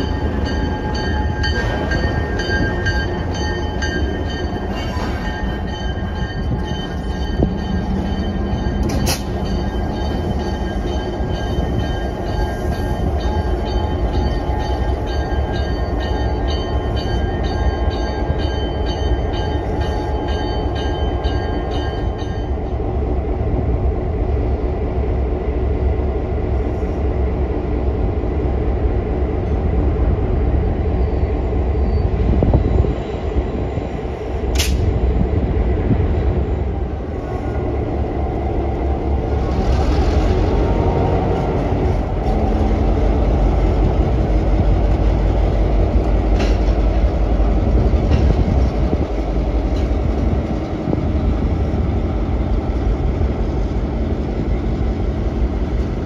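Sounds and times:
locomotive bell ringing: 0.0s - 22.8s
diesel locomotive rumbling: 0.0s - 56.0s.

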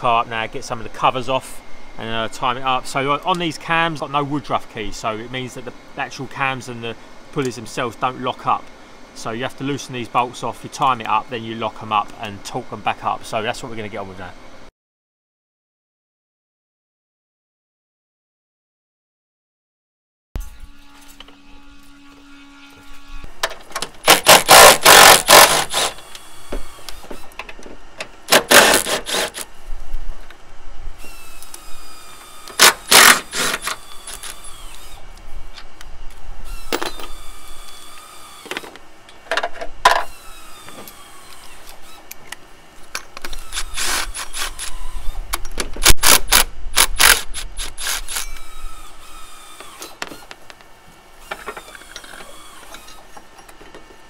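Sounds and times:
impact wrench hammering: 24.0s - 26.0s, 28.3s - 29.4s, 32.5s - 34.3s
motor whining down: 24.0s - 27.3s, 31.0s - 35.1s, 43.3s - 50.3s, 51.2s - 53.0s.

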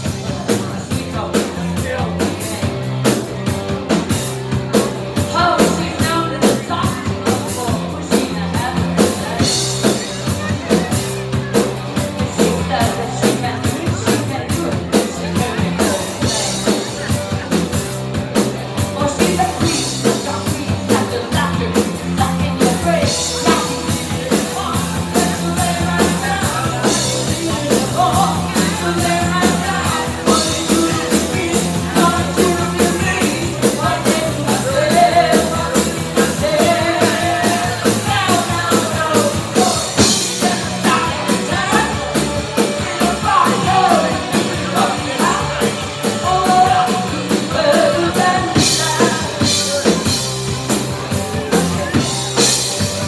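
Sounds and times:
live rock band playing: 0.0s - 53.0s
woman singing: 5.2s - 10.5s, 12.2s - 17.0s, 18.8s - 50.2s.

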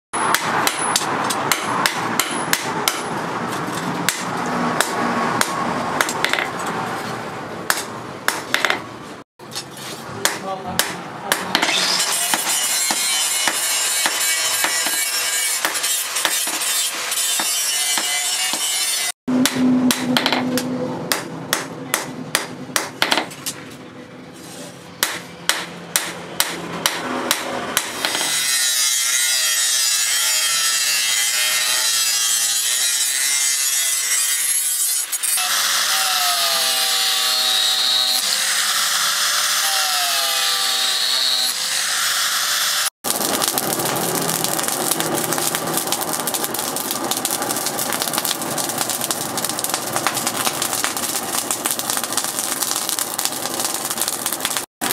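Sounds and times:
angle grinder whining on metal: 28.0s - 49.2s.

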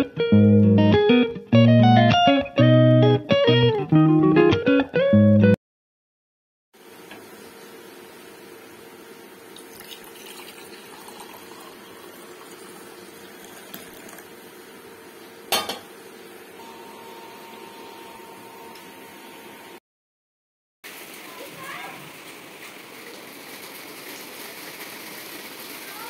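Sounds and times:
steady rain: 20.9s - 26.0s.

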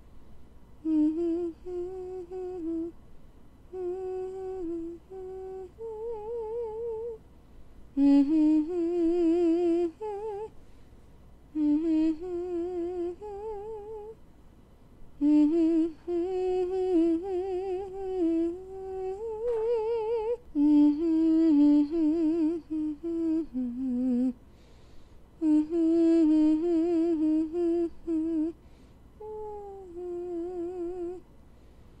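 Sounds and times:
person humming with vibrato: 0.8s - 3.0s, 3.7s - 7.2s, 8.0s - 10.5s, 11.5s - 14.2s, 15.2s - 24.4s, 25.4s - 28.6s, 29.2s - 31.2s.

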